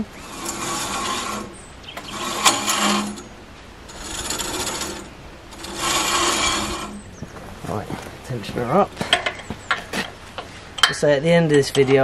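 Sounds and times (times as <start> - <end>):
bandsaw blade scraping: 0.0 - 7.1.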